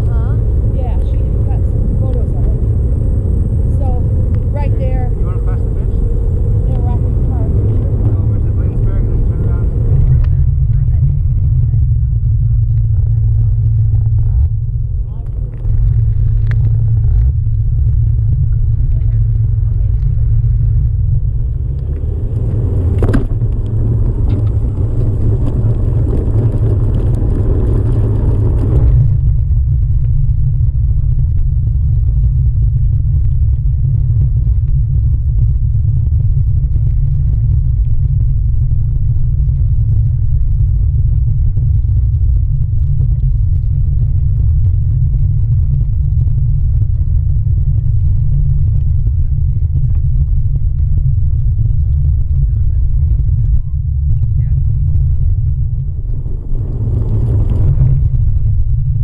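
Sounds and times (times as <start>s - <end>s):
low rumble of wind and vibration: 0.0s - 59.0s
tyre rolling on asphalt: 12.4s - 29.8s, 54.0s - 59.0s.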